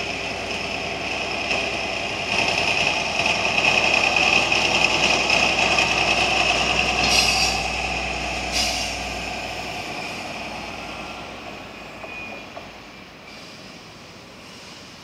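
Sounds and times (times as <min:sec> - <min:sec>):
diesel locomotive engine: 0:00.0 - 0:15.0
short hisses: 0:08.5 - 0:09.1, 0:13.3 - 0:13.8, 0:14.4 - 0:15.0.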